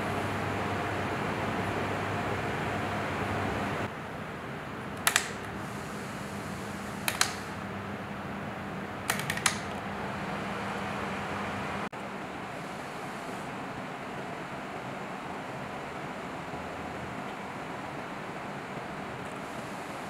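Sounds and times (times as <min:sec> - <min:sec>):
fan whirring: 0:00.0 - 0:20.0
fan control knob clicks: 0:05.0 - 0:05.6, 0:07.0 - 0:07.5, 0:09.1 - 0:09.8.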